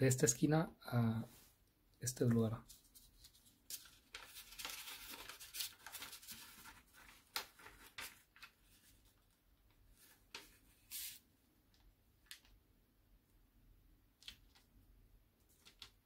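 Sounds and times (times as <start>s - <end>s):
paper folding and crinkling: 2.6s - 12.6s, 15.4s - 16.0s.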